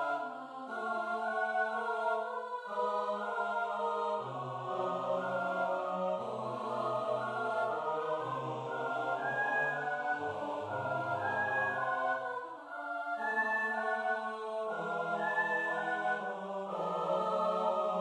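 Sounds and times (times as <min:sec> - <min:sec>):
sampled choir sustained chords: 0:00.0 - 0:18.0.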